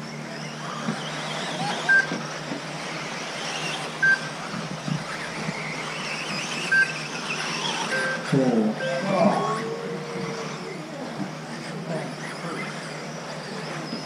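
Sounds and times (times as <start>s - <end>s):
rc car motors whining: 0.0s - 14.0s
short high beeps: 7.8s - 10.6s.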